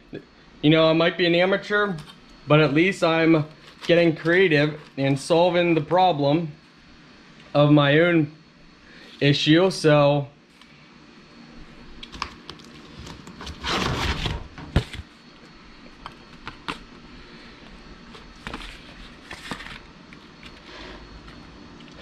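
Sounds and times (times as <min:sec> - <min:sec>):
paper plate handling: 0:03.5 - 0:05.2, 0:18.0 - 0:20.7.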